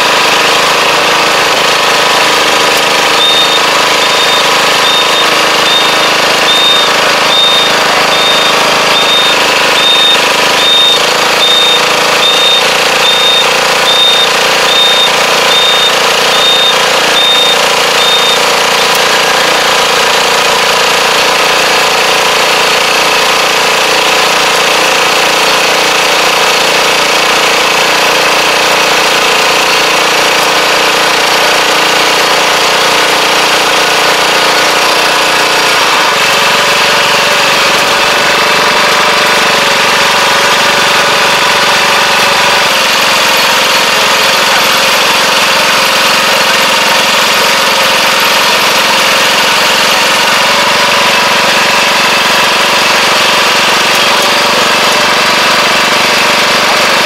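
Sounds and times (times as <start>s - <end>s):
engine running: 0.0s - 57.0s
rapid mechanical clatter: 0.0s - 57.0s
short high beeps: 2.7s - 18.9s.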